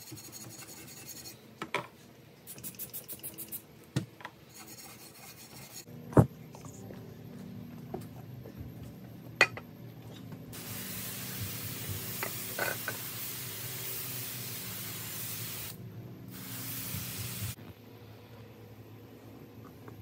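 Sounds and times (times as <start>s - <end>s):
pressurized spray hissing: 10.6s - 17.6s.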